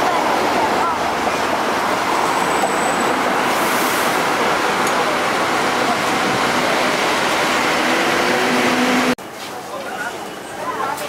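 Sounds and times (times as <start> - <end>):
street traffic noise: 0.0 - 11.0
tram running noise: 0.0 - 11.0.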